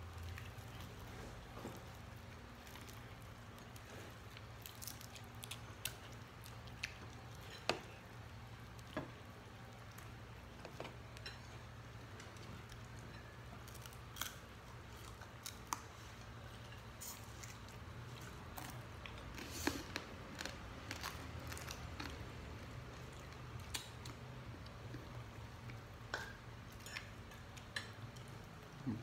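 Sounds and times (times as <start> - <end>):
chewing and squishing: 0.0 - 9.0, 12.2 - 25.9.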